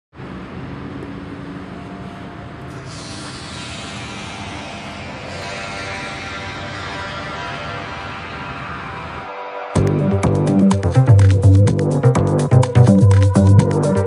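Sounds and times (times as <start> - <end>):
road traffic: 0.1 - 11.1.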